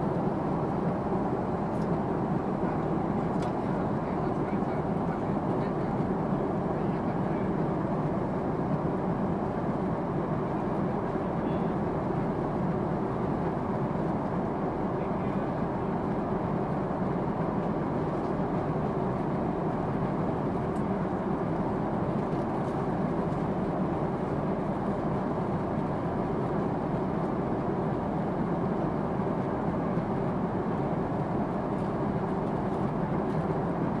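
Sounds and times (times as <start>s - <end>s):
airplane cabin engine and airflow rush: 0.0s - 34.0s.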